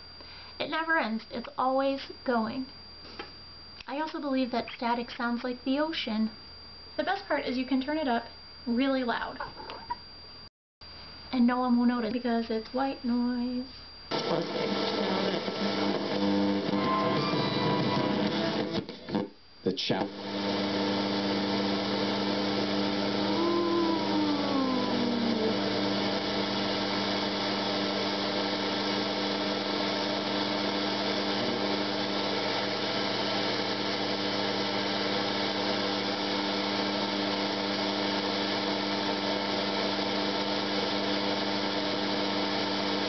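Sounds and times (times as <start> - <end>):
faint hum: 0.0 - 14.3, 21.2 - 29.2
radio static hiss: 6.1 - 16.9, 18.0 - 32.9
faint tone gliding down: 23.2 - 26.0.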